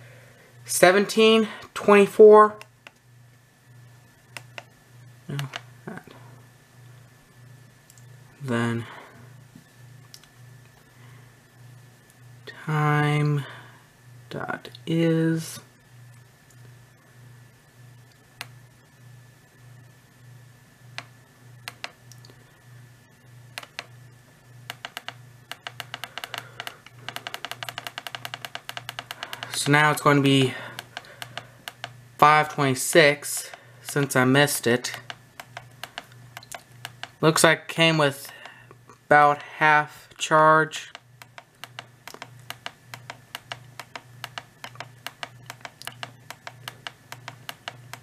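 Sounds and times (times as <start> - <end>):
faint pulsing hum: 0.0 - 48.0
radio buttons clicking: 21.7 - 22.0, 23.6 - 23.9, 24.7 - 32.0, 34.9 - 37.2, 40.9 - 48.0.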